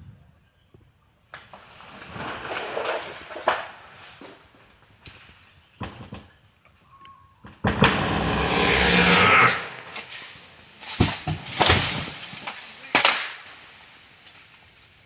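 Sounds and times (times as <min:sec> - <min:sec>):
crash of breaking wood and leaves: 0:01.5 - 0:04.2, 0:10.9 - 0:14.7.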